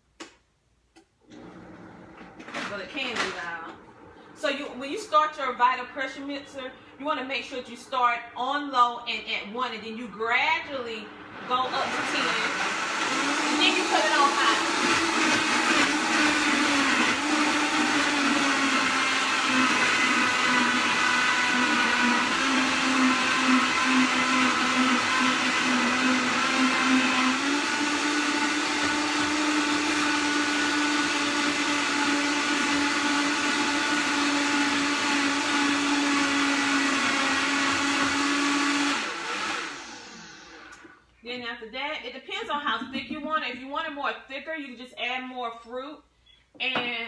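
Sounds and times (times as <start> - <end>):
blender churning ice: 11.1 - 41.0.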